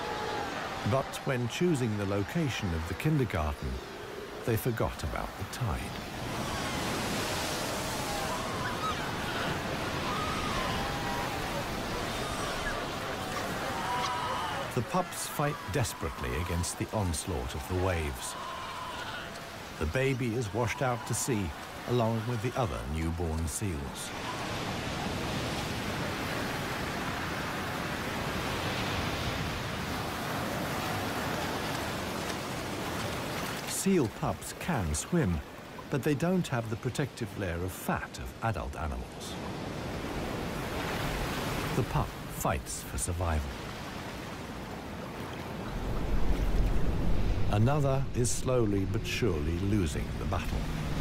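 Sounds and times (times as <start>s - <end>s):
waves breaking on beach: 0.0s - 51.0s
seal pups calling: 8.1s - 14.8s.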